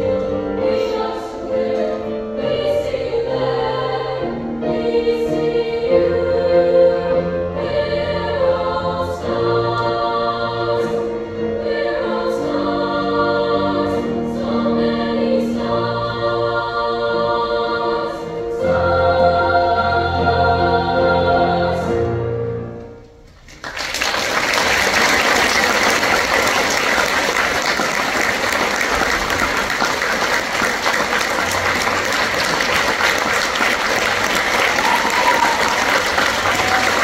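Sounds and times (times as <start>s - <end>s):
women's choir with piano: 0.0s - 23.3s, 24.8s - 37.0s
audience applause: 23.4s - 37.0s.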